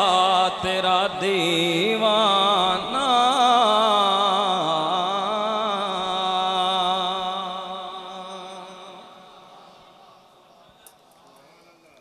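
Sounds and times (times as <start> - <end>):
man singing into a microphone: 0.0 - 9.5.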